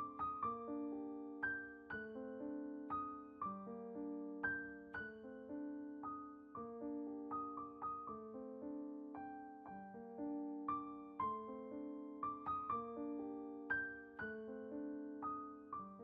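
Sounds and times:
slow solo piano: 0.0s - 16.0s.

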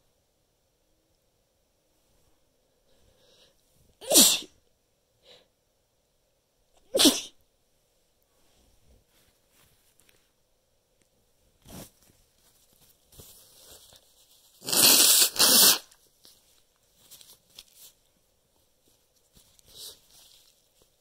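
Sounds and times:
person blowing nose: 4.0s - 4.5s, 7.0s - 7.3s, 14.6s - 16.0s.

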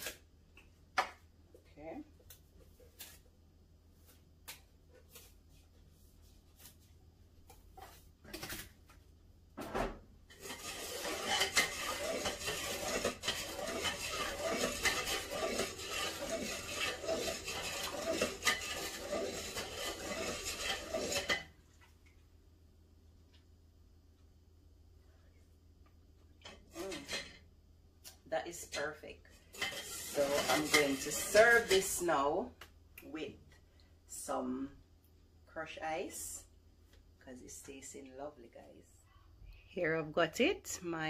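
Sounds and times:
spoon stirring in a pot: 10.3s - 21.6s, 28.6s - 32.0s.

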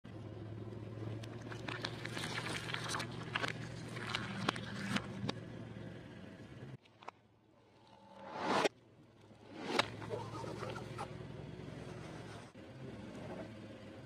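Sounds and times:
car engine idling: 0.1s - 2.2s, 3.1s - 6.8s, 8.8s - 14.0s.

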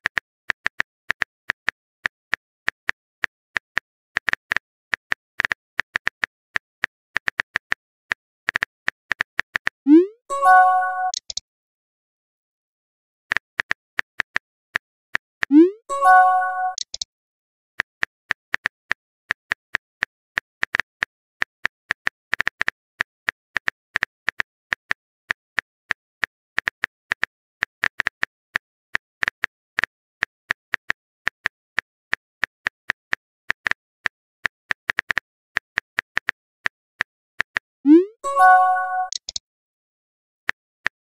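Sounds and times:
phone keyboard clicks: 16.3s - 17.0s, 38.6s - 39.4s.

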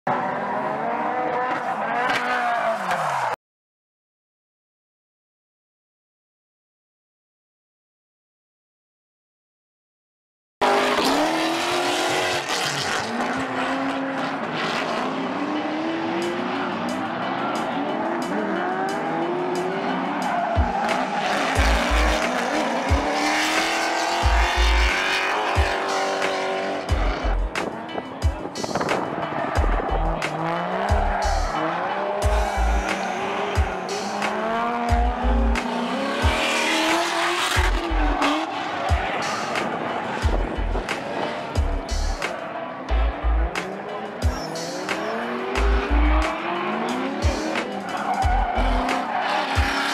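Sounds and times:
car engines revving: 0.1s - 3.4s, 10.6s - 49.9s
hip-hop beat with heavy bass: 15.4s - 49.9s
tyres squealing on asphalt: 19.0s - 23.0s, 46.0s - 49.9s.

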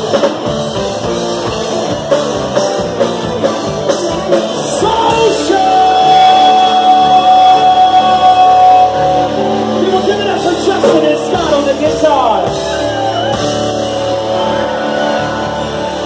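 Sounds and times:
live rock band playing: 0.0s - 16.0s
person singing: 4.4s - 12.0s.

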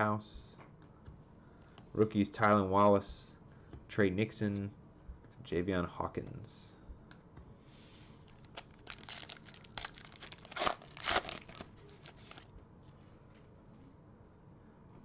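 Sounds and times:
foil wrapper tearing and crinkling: 8.3s - 12.5s.

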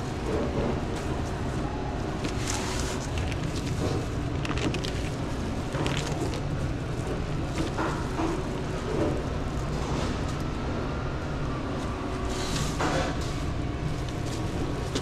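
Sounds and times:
low rumble of background noise: 0.0s - 15.0s
handling rustles and clicks: 2.2s - 9.2s.

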